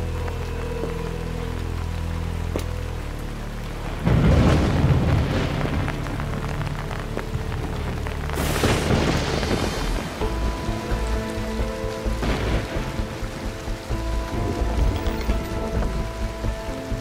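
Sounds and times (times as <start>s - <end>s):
background music: 0.0s - 17.0s
noisy burst: 0.0s - 17.0s
steady hiss: 0.0s - 17.0s
loud crash with low rumble: 8.4s - 10.2s.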